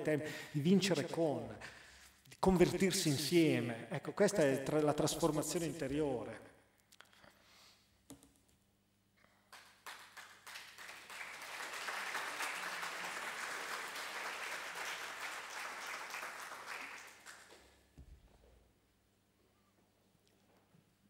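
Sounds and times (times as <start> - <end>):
audience applauding: 9.5 - 17.8.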